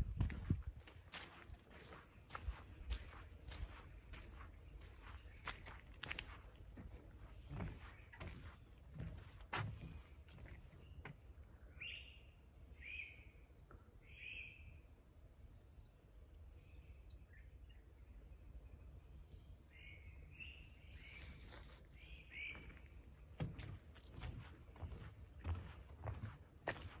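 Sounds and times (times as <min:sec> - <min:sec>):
footsteps on trail: 0:00.0 - 0:11.3, 0:20.9 - 0:27.0
high insect drone: 0:00.0 - 0:27.0.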